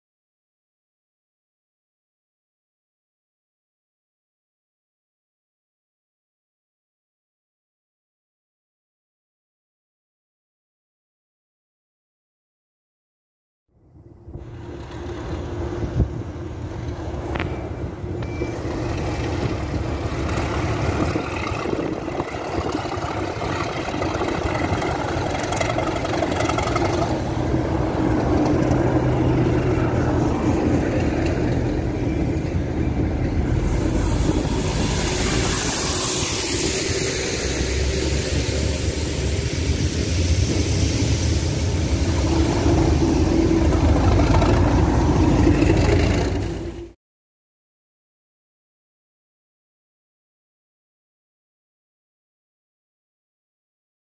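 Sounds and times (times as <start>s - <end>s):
diesel locomotive engine drone: 13.8s - 47.0s
rushing hiss: 33.4s - 44.8s.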